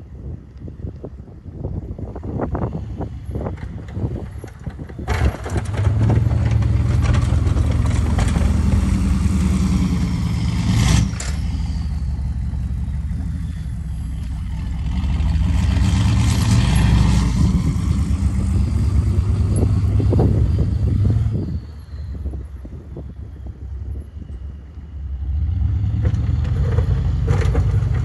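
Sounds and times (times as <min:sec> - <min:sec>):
diesel engine pulling hard: 0:01.9 - 0:28.0
loud clatter: 0:03.5 - 0:11.9.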